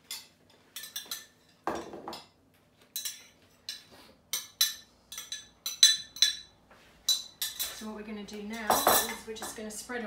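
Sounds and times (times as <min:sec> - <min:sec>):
metal spoon clinking on ceramic bowl: 0:03.0 - 0:07.8, 0:08.6 - 0:09.2.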